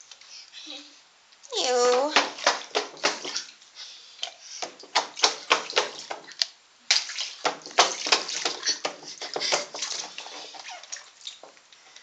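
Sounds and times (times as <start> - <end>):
water splashing in a pool: 1.7 - 3.6, 4.6 - 11.6.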